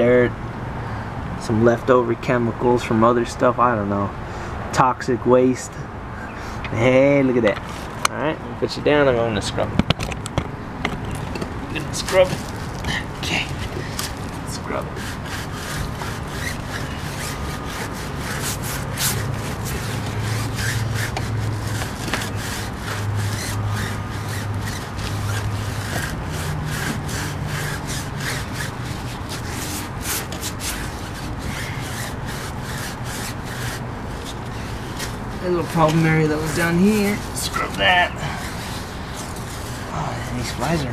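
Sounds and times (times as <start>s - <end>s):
brush scrubbing wet tire: 11.7s - 40.9s.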